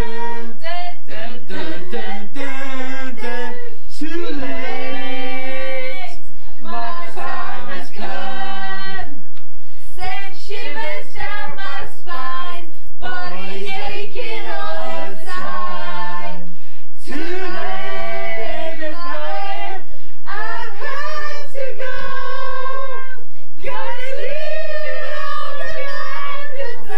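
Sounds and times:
men singing a cappella: 0.0 - 9.0, 17.0 - 26.9.

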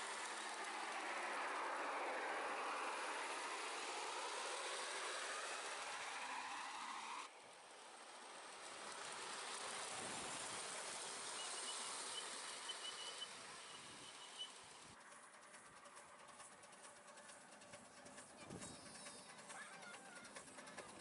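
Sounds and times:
steady outdoor hiss: 0.0 - 21.0
faint rapid ticking: 8.2 - 21.0
faint high bird chirps: 11.3 - 14.8.

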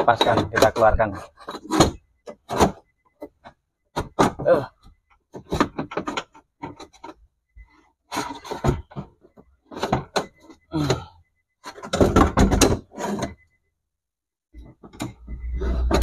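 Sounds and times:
metal knocks and clicks: 11.7 - 13.3.

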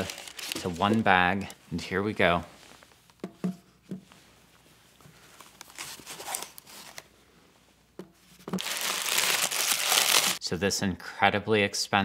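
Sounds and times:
tissue paper crinkling: 0.0 - 1.2, 5.2 - 7.0, 8.6 - 10.4.

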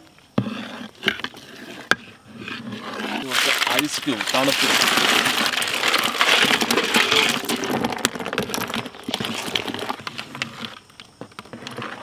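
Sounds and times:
ice clinks and knocks: 3.1 - 10.8
ice cubes splashing into liquid: 3.2 - 9.9.

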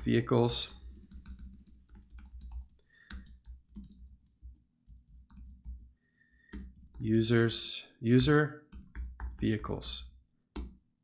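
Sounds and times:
typing on computer keyboard: 0.8 - 5.9, 6.5 - 7.0, 8.7 - 9.5, 10.5 - 10.8.

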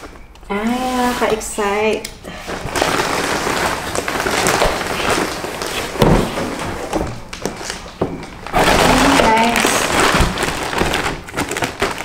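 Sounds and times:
plastic wrapping crinkling: 0.0 - 12.0
cardboard scraping: 2.7 - 7.8, 8.4 - 12.0.

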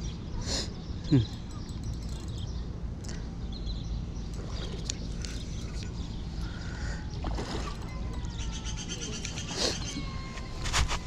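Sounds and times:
fish splashing in water: 7.2 - 7.8.

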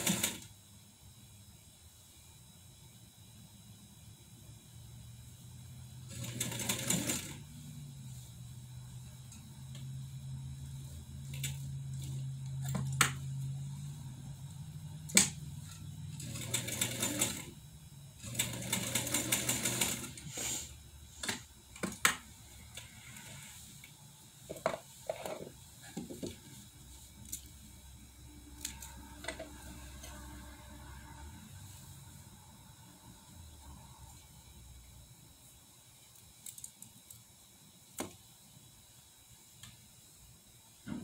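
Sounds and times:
sewing machine running: 0.0 - 0.5, 6.0 - 7.5, 16.1 - 20.3.

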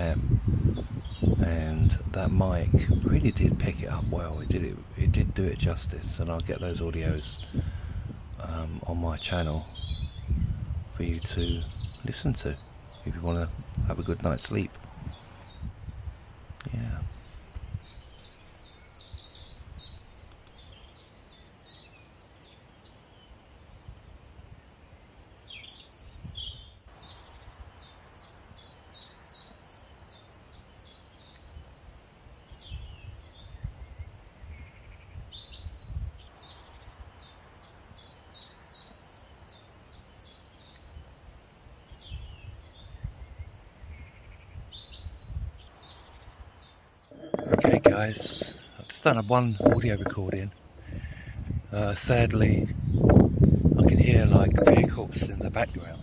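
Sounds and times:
low gusty rumble: 0.0 - 8.9, 49.5 - 56.0
other birds calling: 0.0 - 23.9, 41.8 - 56.0
songbird trilling: 8.8 - 15.7, 41.9 - 56.0.

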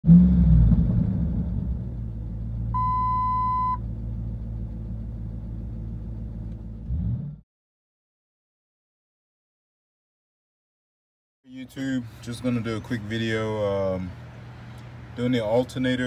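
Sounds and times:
car engine idling: 0.7 - 6.9
electronic dashboard chime: 2.8 - 3.8.

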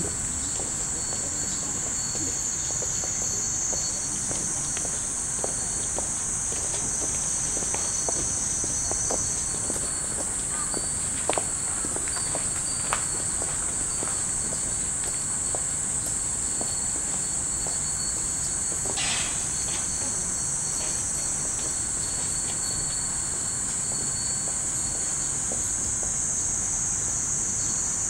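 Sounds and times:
metal wind chimes clinking: 0.0 - 5.0, 9.3 - 26.0
cicadas droning: 0.0 - 28.0.

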